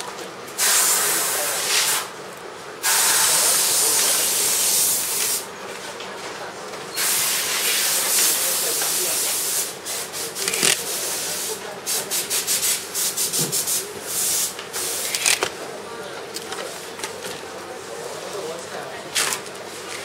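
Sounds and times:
compressed air hissing: 0.6 - 2.1, 7.0 - 15.4.

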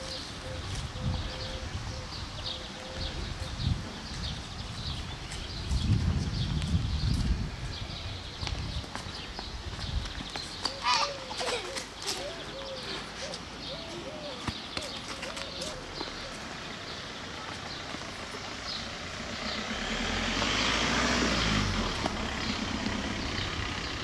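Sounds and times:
bird calling: 0.0 - 3.6, 10.4 - 19.7
road vehicle passing: 15.5 - 24.0.

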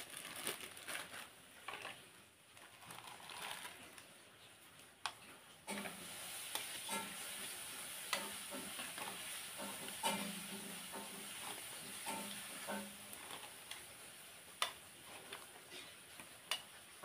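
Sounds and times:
plastic bags rustling: 0.0 - 17.0
small clicks and taps: 16.2 - 16.7.

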